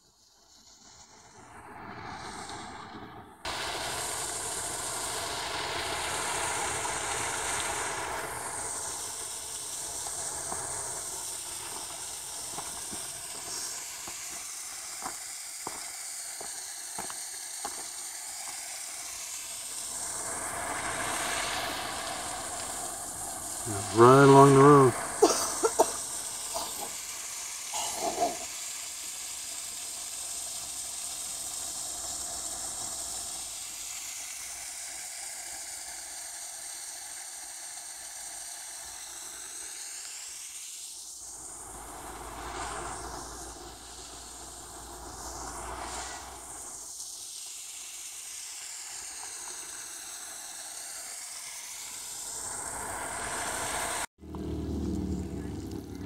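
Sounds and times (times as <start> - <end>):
creek water over small waterfalls: 3.4 - 40.3, 41.0 - 56.0
low rumble: 54.2 - 56.0.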